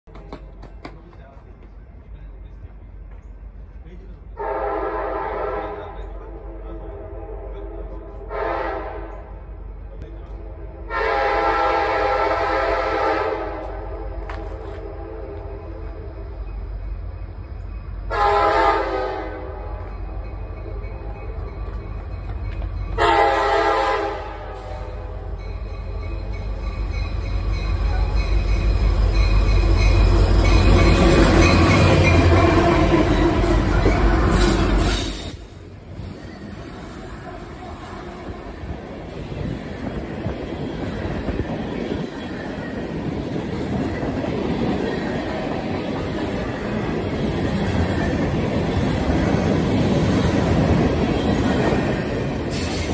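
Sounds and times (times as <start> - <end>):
train wheel noise: 0.1 - 4.4, 9.7 - 52.9
locomotive air horn blasts: 4.4 - 9.3, 10.8 - 15.9, 18.1 - 19.8, 23.0 - 25.1
high wheel squeal: 25.3 - 37.6.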